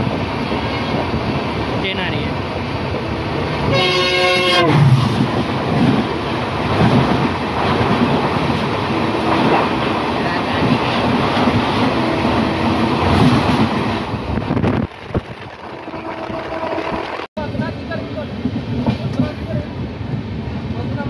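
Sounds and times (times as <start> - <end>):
train rattling: 0.0 - 21.0
train wheels rushing on rails: 0.0 - 21.0
wind rushing: 4.7 - 17.3.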